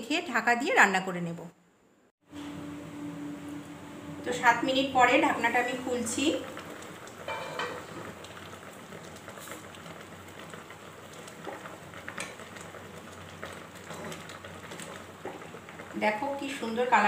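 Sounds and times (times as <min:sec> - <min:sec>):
curry simmering and bubbling: 0:05.3 - 0:16.9.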